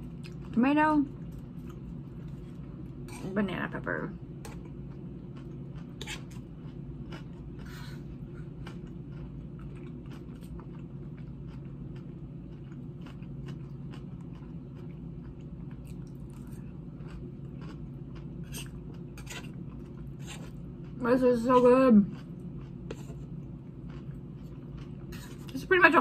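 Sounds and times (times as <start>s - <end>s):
steady low hum: 0.0s - 26.0s
wet crunchy chewing: 4.4s - 21.0s, 22.0s - 25.6s.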